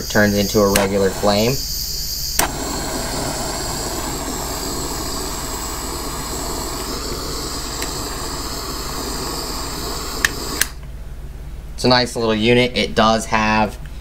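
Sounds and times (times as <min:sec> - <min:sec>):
gas flame hissing: 0:00.0 - 0:10.9
torch ignition click: 0:00.5 - 0:01.7, 0:02.3 - 0:10.9.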